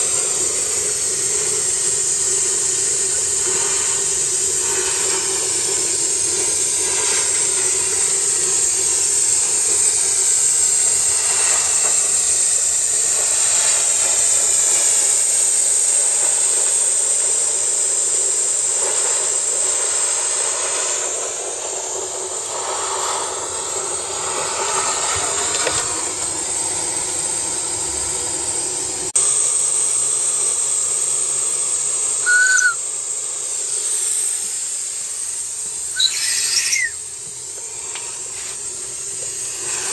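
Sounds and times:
loud hiss of escaping steam: 0.0s - 39.9s
brief high squeak: 32.3s - 32.8s, 36.0s - 37.0s.

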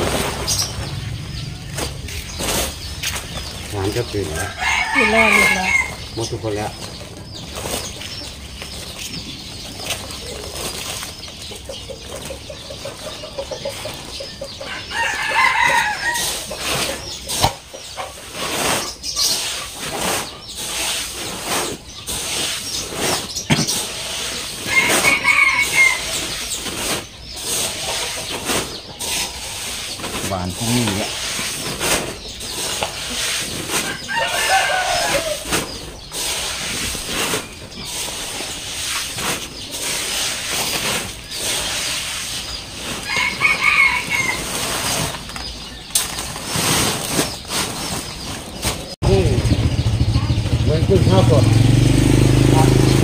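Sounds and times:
wet grain rustling and scraping: 0.0s - 49.0s
rooster crowing: 4.3s - 6.1s, 14.7s - 16.5s, 24.7s - 26.2s, 33.8s - 35.5s, 43.0s - 44.6s.

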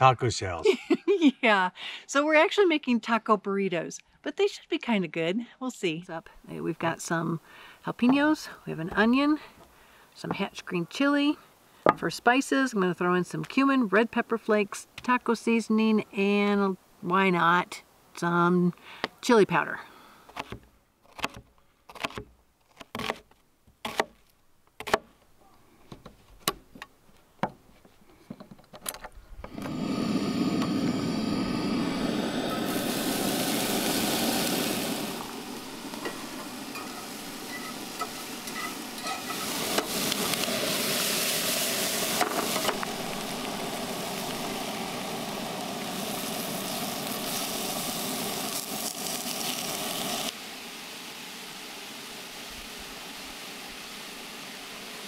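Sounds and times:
food sizzling in a skillet: 29.7s - 55.0s.

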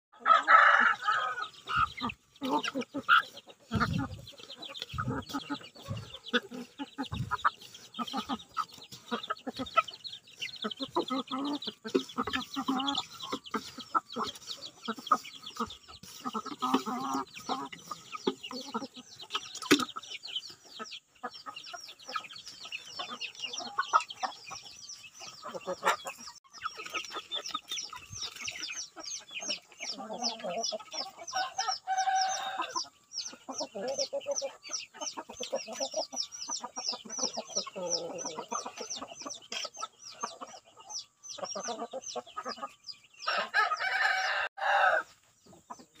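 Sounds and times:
chickens clucking: 0.1s - 46.0s
rooster crowing: 31.4s - 32.7s, 43.3s - 45.1s.

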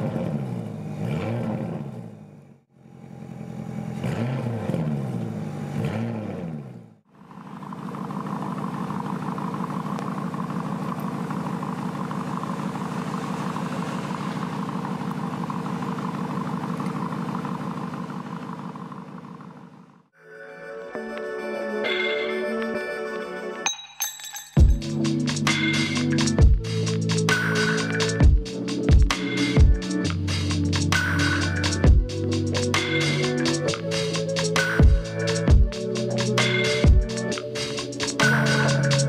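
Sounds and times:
car engine revving: 0.0s - 20.1s, 24.8s - 39.0s
car engine idling: 7.0s - 20.1s, 24.8s - 39.0s.

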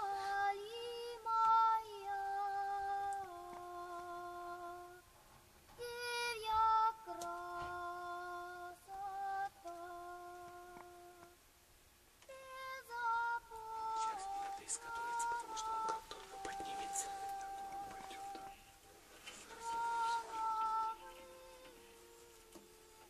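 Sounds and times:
slow humming melody: 0.0s - 5.1s, 5.8s - 11.4s, 12.2s - 18.6s, 19.3s - 23.0s.

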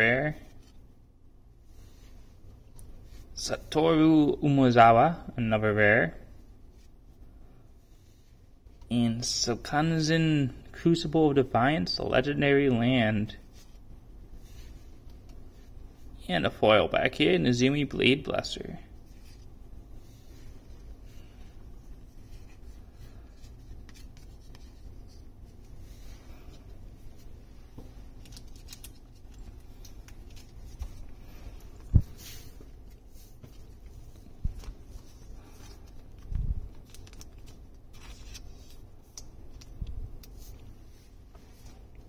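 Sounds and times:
cards rustling and sliding: 19.0s - 42.0s.

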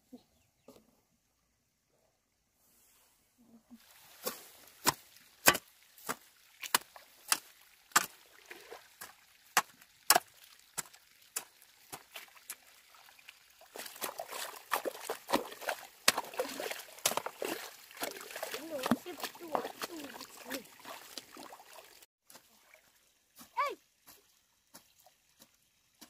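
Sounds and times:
chopping strikes: 4.8s - 7.4s.

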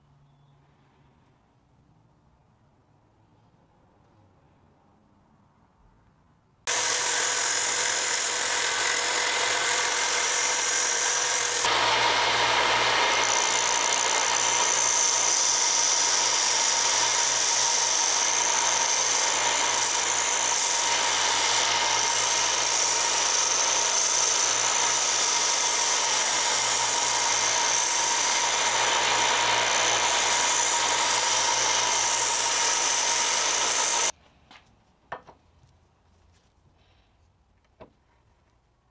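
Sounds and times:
belt grinder humming: 6.7s - 34.1s
wood sanding hiss: 6.7s - 34.1s.

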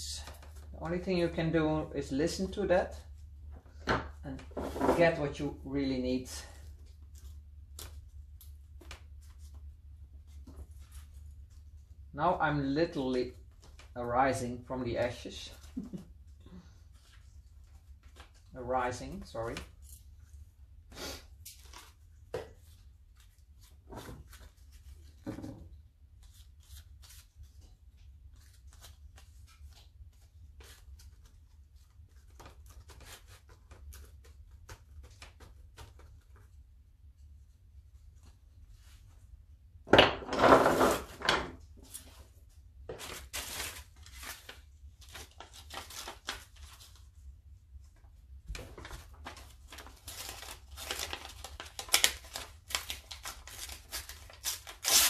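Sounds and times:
paper rustling: 41.8s - 55.0s
paper tearing: 49.3s - 55.0s.

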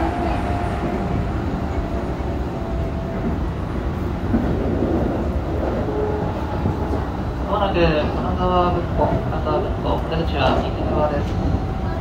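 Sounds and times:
electric train rumble and hum: 0.0s - 12.0s.

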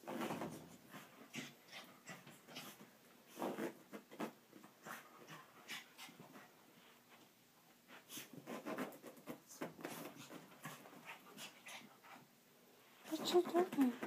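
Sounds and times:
dog scuffling on carpet: 7.9s - 12.2s.

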